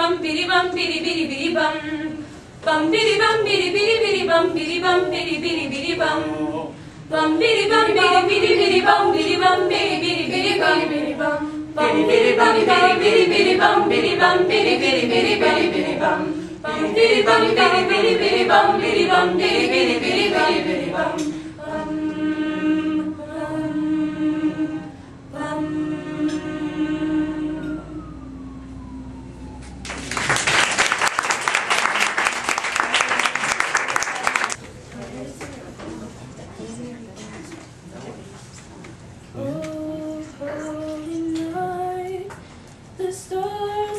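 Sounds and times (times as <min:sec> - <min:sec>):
choir singing a cappella: 0:00.0 - 0:28.6, 0:39.4 - 0:42.3, 0:43.0 - 0:43.9
audience applause: 0:29.8 - 0:34.6.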